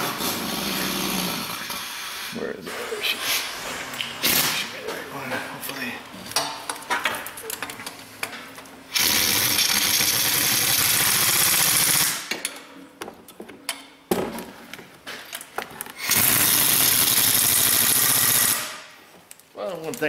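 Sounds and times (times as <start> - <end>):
pneumatic impact wrench hammering: 4.2 - 4.7, 8.9 - 12.5, 16.0 - 18.9.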